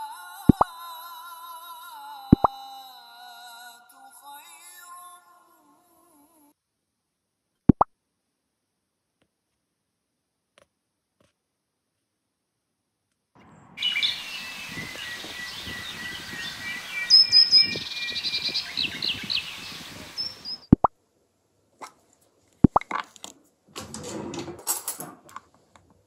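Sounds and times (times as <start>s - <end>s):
outdoor background noise: 7.3s - 26.0s
songbirds singing and chirping: 13.4s - 20.8s
rapid bird trill: 13.8s - 20.7s.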